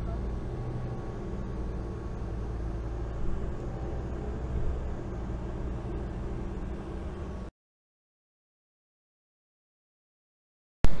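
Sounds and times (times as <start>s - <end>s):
car engine and road rumble: 0.0s - 7.5s.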